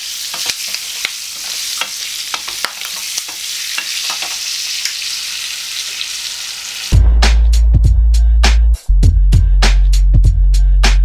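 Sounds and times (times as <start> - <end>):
chillies sizzling in oil: 0.0 - 7.0.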